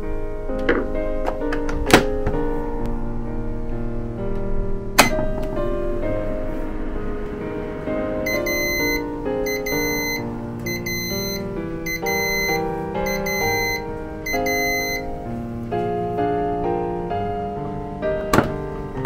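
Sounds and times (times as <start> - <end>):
background piano music: 0.0 - 19.0
rice cooker beeps: 8.3 - 15.1.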